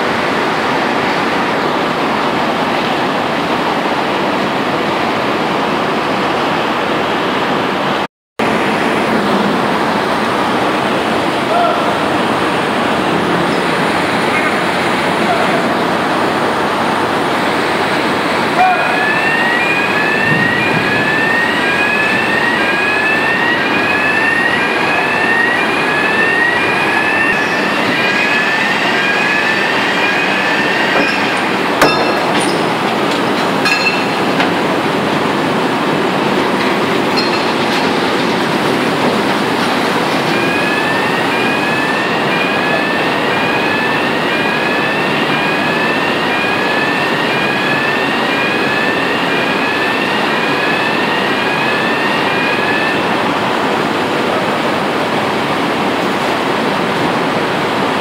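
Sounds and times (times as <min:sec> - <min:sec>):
blast furnace roaring: 0:08.4 - 0:44.2
two-tone electronic warning chirp: 0:18.7 - 0:32.8, 0:40.3 - 0:53.2.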